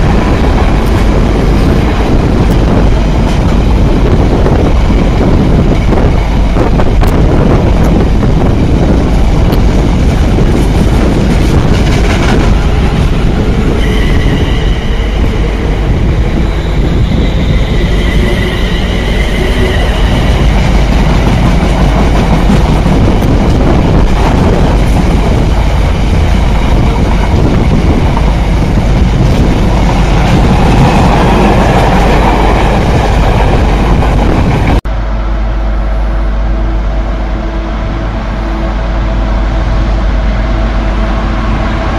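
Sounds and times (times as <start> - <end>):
wheels clickety-clack on rails: 0.0 - 13.8, 17.0 - 34.8
freight train rumbling: 0.0 - 41.9.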